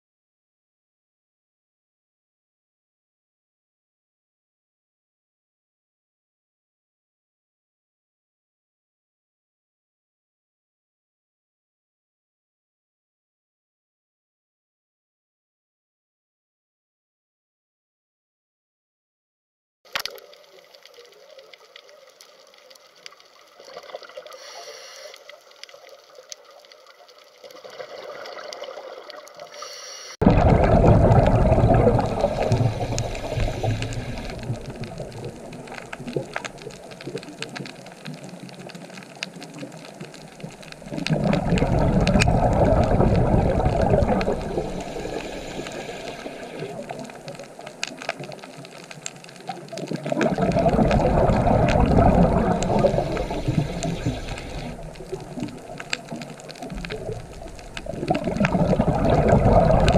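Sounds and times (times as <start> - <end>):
underwater bubbling and rushing: 19.9 - 59.9.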